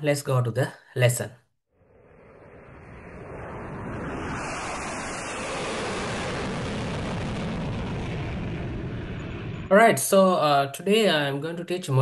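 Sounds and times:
aircraft flying past: 1.8 - 9.7.

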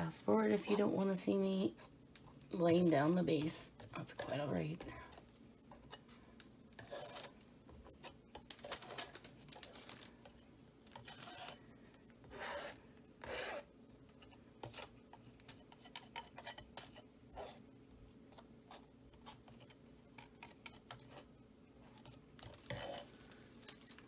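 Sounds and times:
palette knife scraping canvas: 6.8 - 7.3, 11.0 - 11.6, 12.2 - 13.7, 22.4 - 23.9.

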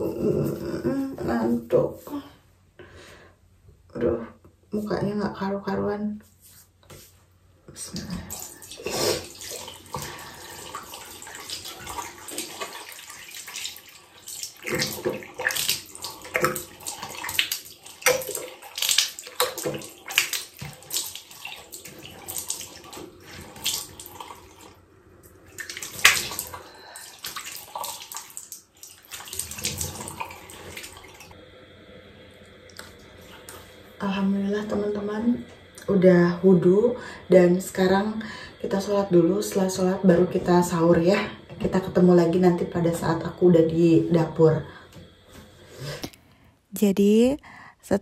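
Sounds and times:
water running from a tap: 7.9 - 31.4, 32.2 - 45.9
water splashing from hands: 8.3 - 24.3, 25.6 - 31.3.

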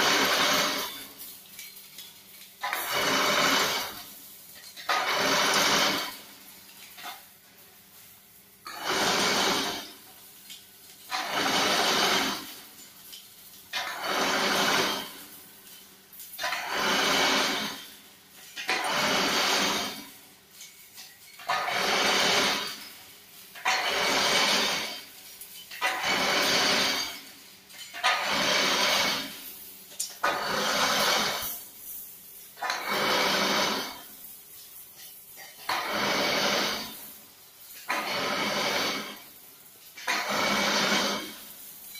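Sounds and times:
machine twisting wire whirring: 0.0 - 1.2, 2.6 - 4.1, 4.7 - 6.4, 8.6 - 10.1, 11.1 - 12.8, 13.7 - 15.3, 16.3 - 17.9, 18.6 - 20.2, 21.4 - 29.4, 30.1 - 31.7, 32.6 - 34.1, 35.6 - 37.1, 37.8 - 39.3, 40.0 - 41.6.

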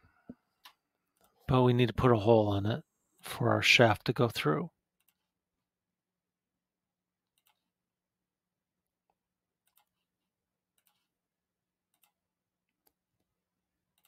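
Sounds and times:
computer mouse clicks: 5.0 - 5.3, 7.3 - 7.7, 9.6 - 10.1, 10.7 - 11.1, 11.9 - 12.2.

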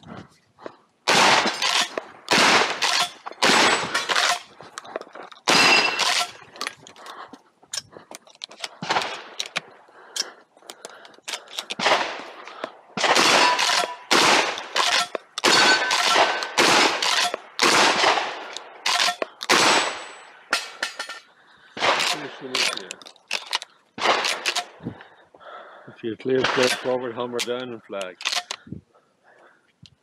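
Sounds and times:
shotgun shots with echo: 1.1 - 4.4, 5.5 - 6.3, 11.8 - 12.3, 13.0 - 20.1, 26.4 - 27.0
shotgun action cycling: 28.1 - 28.6.

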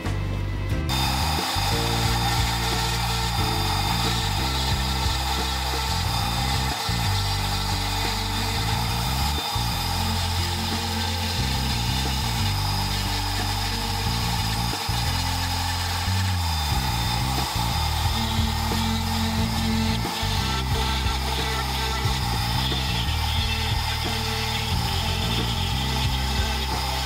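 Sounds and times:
rotary tool whining: 0.9 - 27.0
tool carving wood: 0.9 - 27.0.

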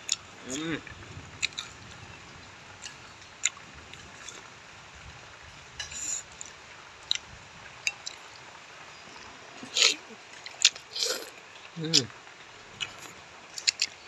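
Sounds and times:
person chewing: 9.6 - 12.1, 12.8 - 14.0.

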